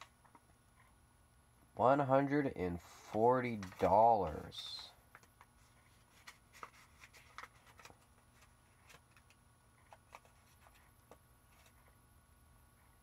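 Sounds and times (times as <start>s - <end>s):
paper rustling: 3.0s - 12.0s.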